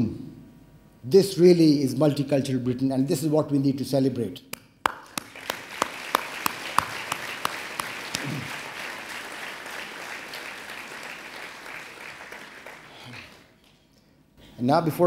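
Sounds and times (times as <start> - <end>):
large audience applauding: 4.8 - 13.6.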